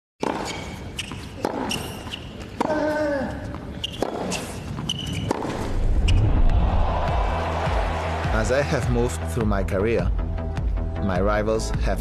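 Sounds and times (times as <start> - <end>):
shoe squeaks on hard court: 0.2 - 2.7, 3.5 - 5.5
racket hitting tennis ball: 0.2 - 2.8, 3.8 - 6.2.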